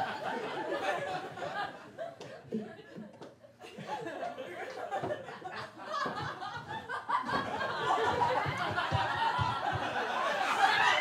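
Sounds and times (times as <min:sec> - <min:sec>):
audience laughing and cheering: 0:00.0 - 0:11.0.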